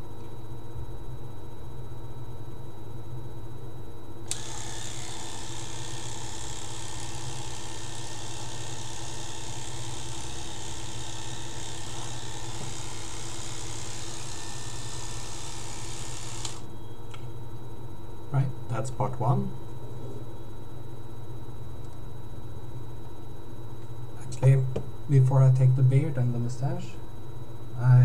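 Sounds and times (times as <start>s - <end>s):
electric hair clipper buzzing: 4.3s - 16.7s.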